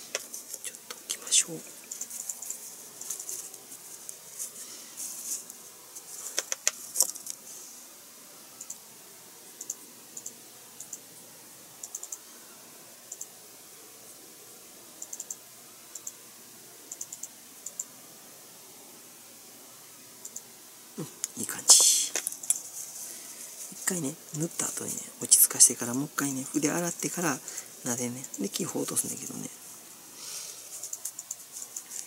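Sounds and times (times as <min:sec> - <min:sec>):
paintbrush light ticks: 0:09.6 - 0:11.0, 0:11.8 - 0:12.2, 0:13.1 - 0:13.4, 0:15.0 - 0:16.2, 0:16.9 - 0:17.9, 0:20.2 - 0:20.5, 0:30.8 - 0:32.0.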